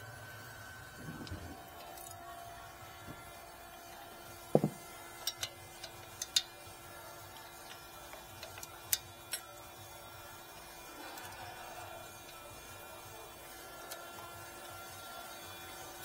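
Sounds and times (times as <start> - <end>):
tool knocking on metal: 4.5 - 4.8.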